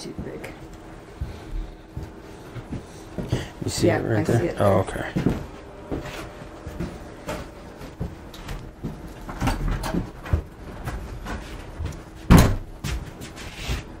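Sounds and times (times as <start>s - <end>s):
loud thump: 12.3s - 12.7s.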